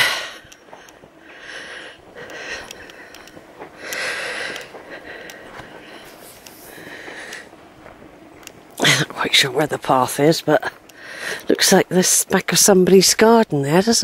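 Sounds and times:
faint clicks: 0:00.0 - 0:07.5, 0:08.4 - 0:08.8, 0:10.7 - 0:11.6
person breathing: 0:00.0 - 0:07.6, 0:10.9 - 0:11.5.

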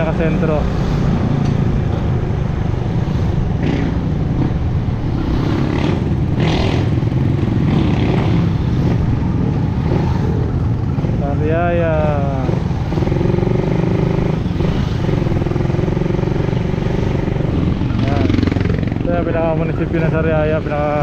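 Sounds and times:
road and wind noise: 0:00.0 - 0:21.0
motorcycle engine running: 0:12.2 - 0:20.0.

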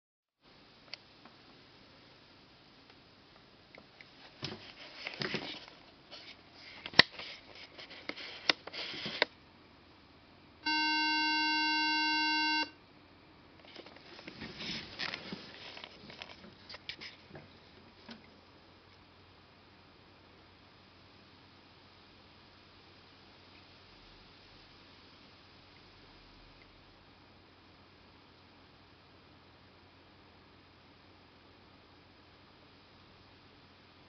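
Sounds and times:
hands handling a laptop: 0:04.3 - 0:09.3, 0:13.7 - 0:17.5
electronic tone from laptop speaker: 0:10.6 - 0:12.8.

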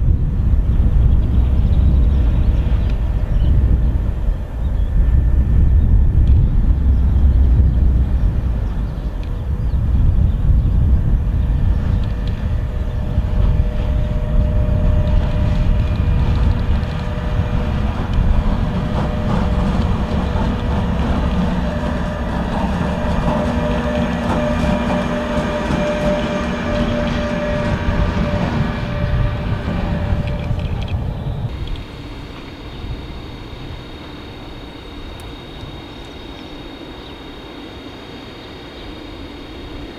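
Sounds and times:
locomotive low rumble: 0:00.0 - 0:38.2
electric locomotive whine: 0:00.0 - 0:39.9
wheels clicking over rail joints: 0:11.8 - 0:32.5.

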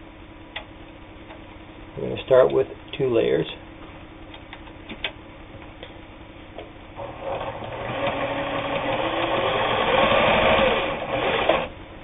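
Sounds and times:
sewing machine stitching: 0:07.0 - 0:11.7.

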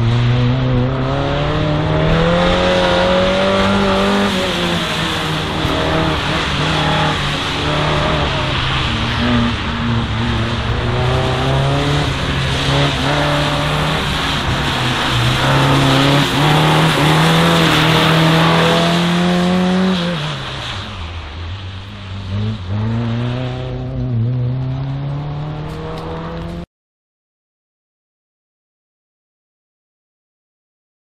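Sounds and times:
car engine revving: 0:00.0 - 0:26.7
tyres hissing on wet track: 0:01.7 - 0:23.9.

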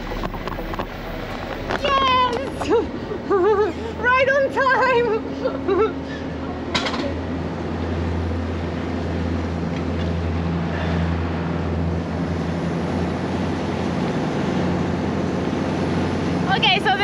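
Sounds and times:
ship engines droning: 0:00.0 - 0:17.0
water churning along hull: 0:00.0 - 0:17.0.

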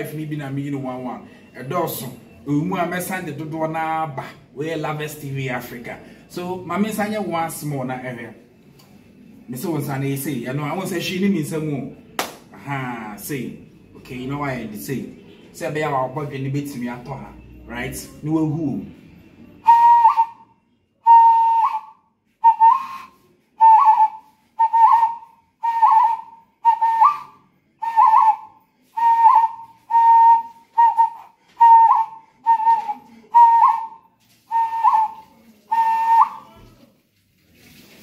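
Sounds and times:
whistled note: 0:19.5 - 0:36.8.

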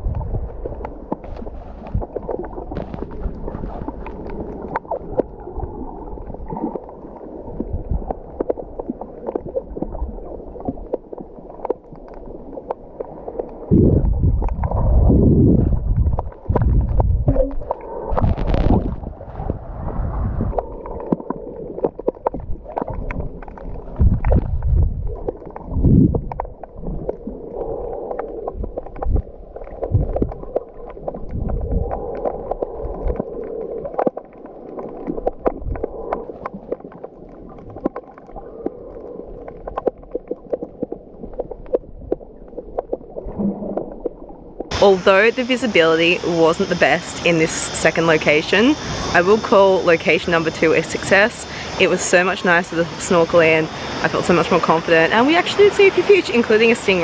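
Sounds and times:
small clicks underwater: 0:00.0 - 0:14.9, 0:15.6 - 0:19.6, 0:20.5 - 0:44.7
low water sloshing surges: 0:00.0 - 0:57.0
muffled underwater gurgling: 0:00.0 - 0:57.0.

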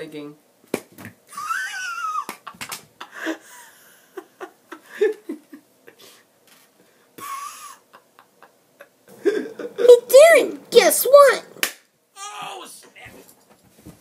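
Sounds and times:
man giggling: 0:01.3 - 0:06.1, 0:07.2 - 0:09.9
man yelling: 0:12.2 - 0:13.1.

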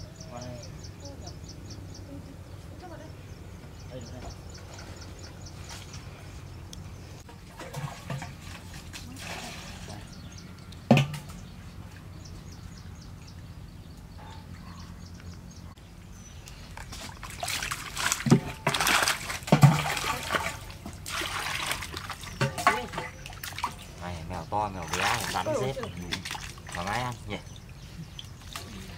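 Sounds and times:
water sloshing and splashing: 0:07.2 - 0:10.2, 0:16.4 - 0:28.9.

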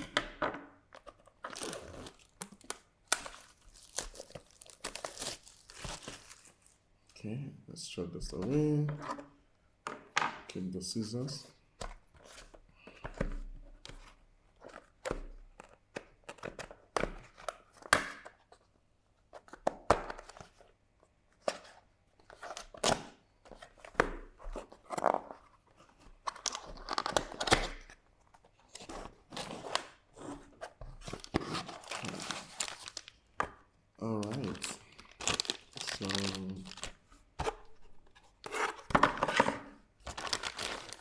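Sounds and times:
cardboard box handled and opened: 0:01.0 - 0:06.5, 0:28.5 - 0:33.0, 0:40.1 - 0:41.0.

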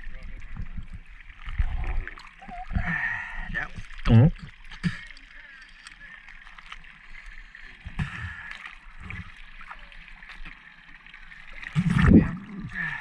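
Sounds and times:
seawater sloshing and gurgling: 0:00.0 - 0:13.0
water splash: 0:11.5 - 0:13.0.

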